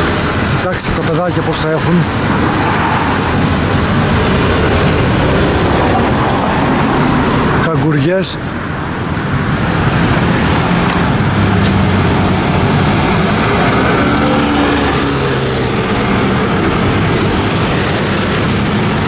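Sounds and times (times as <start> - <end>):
street traffic din: 0.0 - 19.0
motor scooters riding past: 11.2 - 19.0.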